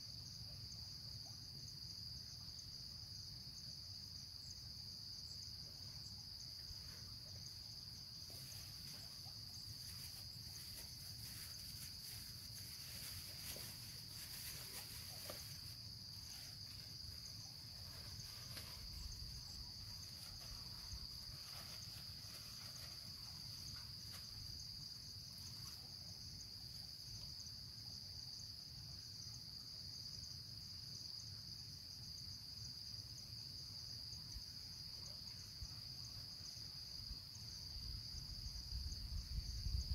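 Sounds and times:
insects trilling: 4.4 - 28.4.

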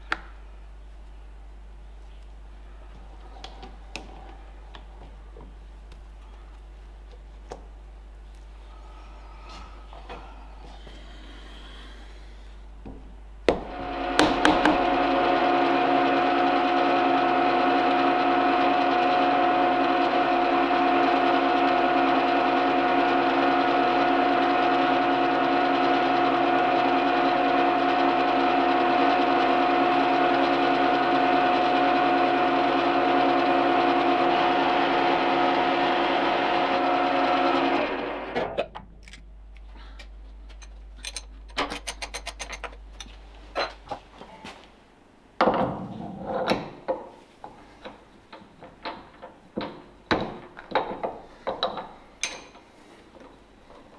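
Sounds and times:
milling machine whining: 13.5 - 38.6.

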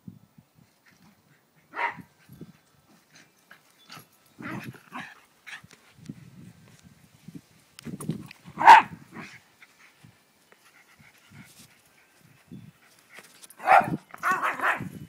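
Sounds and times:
small dog barking: 1.7 - 2.1, 8.6 - 9.3, 13.6 - 14.9.

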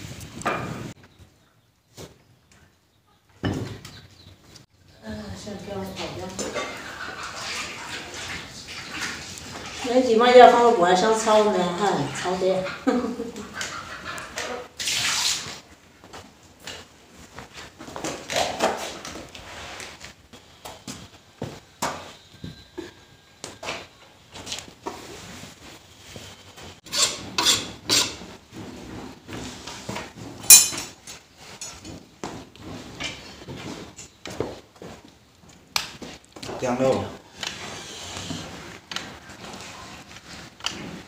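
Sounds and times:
metal wok and utensils clinking: 30.4 - 31.8.

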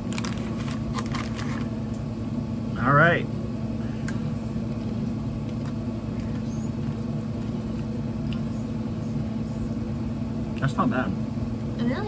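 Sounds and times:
crackers being chewed: 0.0 - 2.0, 4.7 - 8.5.

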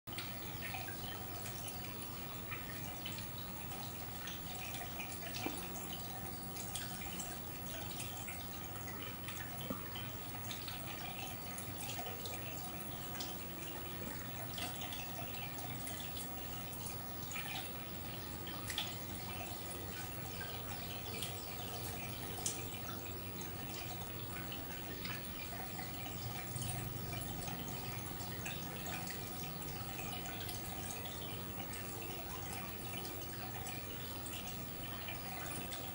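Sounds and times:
aquarium water trickling: 0.1 - 35.9
small water drips and plops: 0.1 - 35.9.

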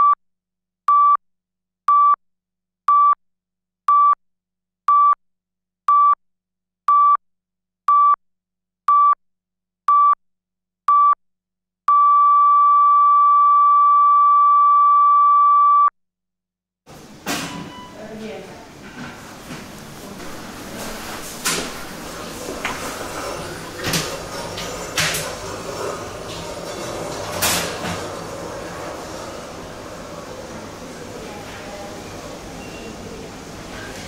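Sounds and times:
heart monitor beeping: 0.9 - 1.2, 1.9 - 2.2, 2.9 - 3.2, 3.9 - 4.2, 4.9 - 5.2, 5.9 - 6.2, 6.9 - 7.2, 7.9 - 8.2, 8.9 - 9.2, 9.9 - 10.2, 10.9 - 11.2, 11.9 - 15.9.

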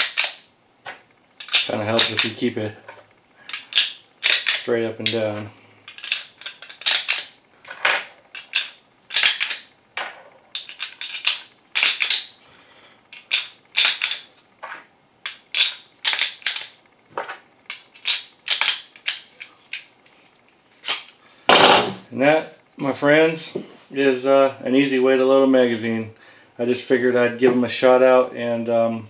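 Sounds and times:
magazine loader clicking: 3.5 - 4.7, 8.4 - 9.6, 13.2 - 14.3, 15.3 - 16.7, 18.0 - 19.2.

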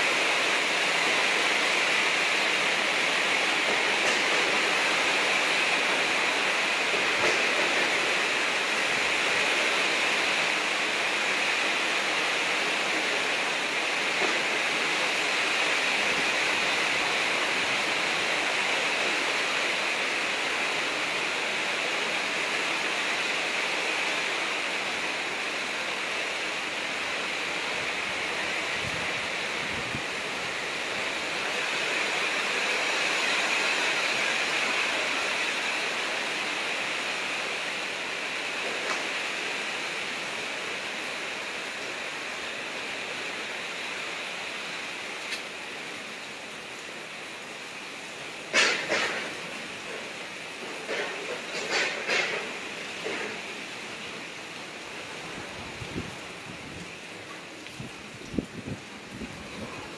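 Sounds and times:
strong storm wind: 0.0 - 38.6, 54.8 - 59.9
heavy rain: 0.0 - 59.9.

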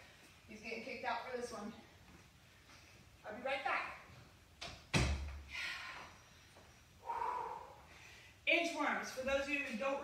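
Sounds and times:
heavy breathy exhale: 7.0 - 8.4.

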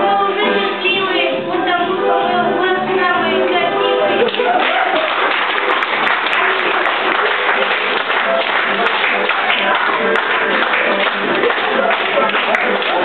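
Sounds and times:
music playing: 0.0 - 13.0
audience clapping: 4.2 - 13.0.

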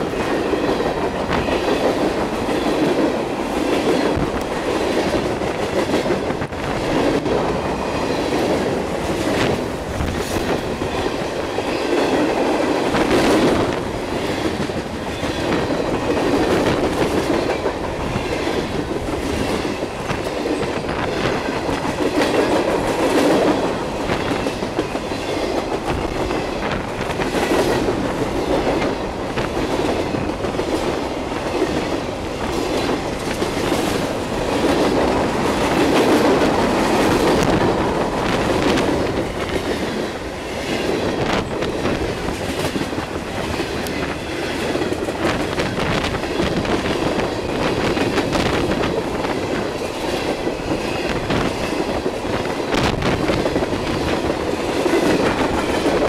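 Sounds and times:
freight train rolling rattle: 0.0 - 56.0.

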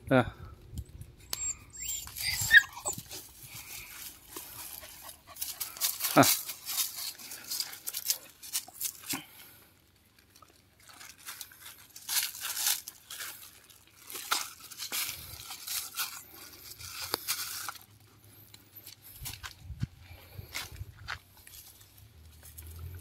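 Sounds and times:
plastic bag crinkling and tearing: 3.0 - 18.0.

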